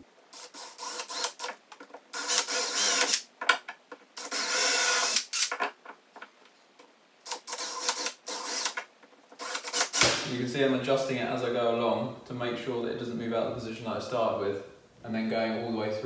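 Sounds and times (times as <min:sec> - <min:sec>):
cordless drill boring into wood: 0:00.4 - 0:01.5, 0:02.2 - 0:03.2, 0:04.2 - 0:05.5, 0:07.4 - 0:08.8.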